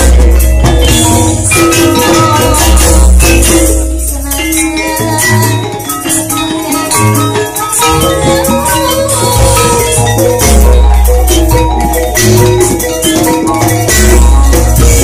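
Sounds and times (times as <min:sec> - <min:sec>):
gamelan ensemble playing: 0:00.0 - 0:15.0.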